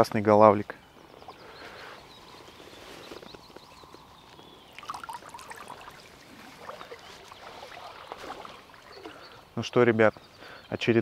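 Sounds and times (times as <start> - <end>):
shallow river water trickling: 0.8 - 10.7
fish splashing: 4.8 - 9.3.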